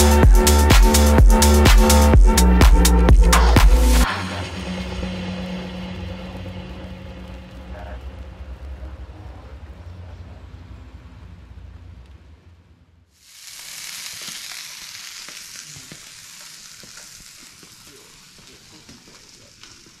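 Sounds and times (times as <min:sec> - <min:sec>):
fish sizzling on a hotplate: 0:13.2 - 0:20.0
popping and crackling: 0:13.2 - 0:20.0.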